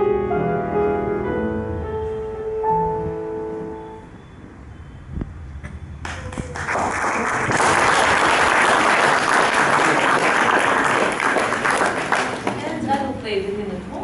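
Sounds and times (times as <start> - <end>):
audience applauding: 6.0 - 12.7.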